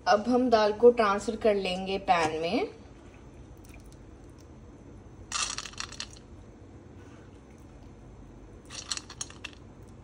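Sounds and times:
lentils rattling into metal pan: 5.3s - 6.2s, 8.7s - 9.6s.

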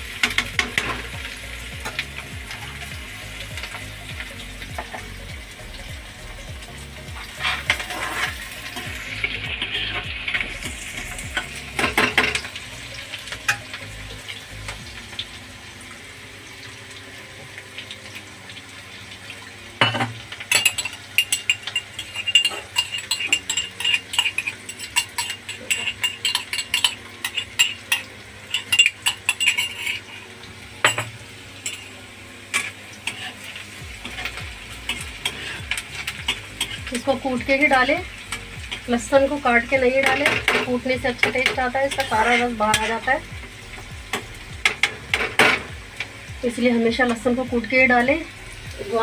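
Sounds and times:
food sizzling in hot oil: 0.0s - 49.0s
metal spoon scraping pan: 7.2s - 12.5s, 20.6s - 30.3s, 32.5s - 33.4s, 34.0s - 36.8s, 40.0s - 43.2s
spoon knocking on pan: 44.0s - 45.8s.

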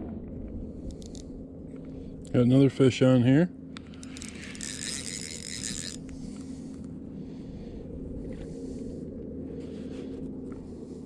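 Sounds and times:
motor humming: 3.7s - 7.4s.

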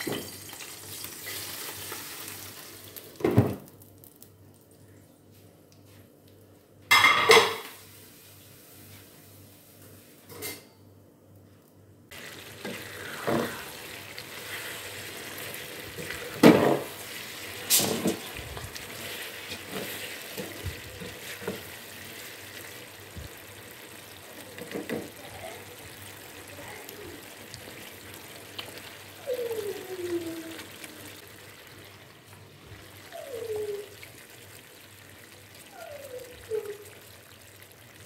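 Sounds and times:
food sizzling in a pan: 0.0s - 4.5s, 6.9s - 10.5s, 12.1s - 38.0s
dishes clattering: 6.9s - 7.8s.

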